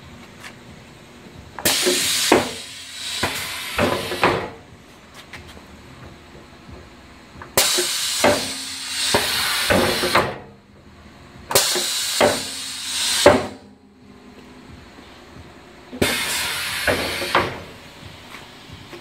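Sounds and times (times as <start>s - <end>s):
compressed air hiss: 1.6s - 4.5s, 7.6s - 10.3s, 11.5s - 13.6s, 16.0s - 18.5s.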